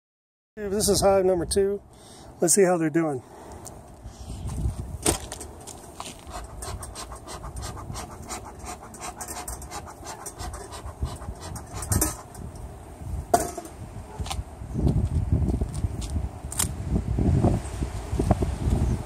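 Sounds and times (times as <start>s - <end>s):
bellows puffing air: 5.9s - 12.6s.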